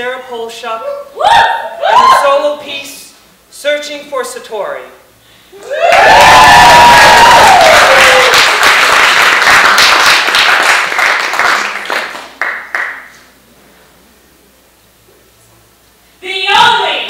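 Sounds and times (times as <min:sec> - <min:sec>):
falling whoop: 0:05.6 - 0:08.4
audience applauding: 0:05.8 - 0:13.2.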